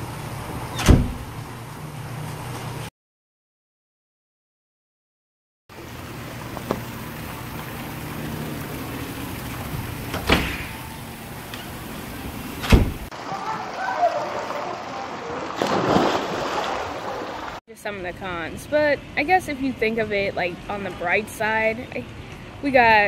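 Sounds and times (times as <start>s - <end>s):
door being opened: 0.7s - 1.4s, 10.1s - 11.8s, 12.6s - 13.1s.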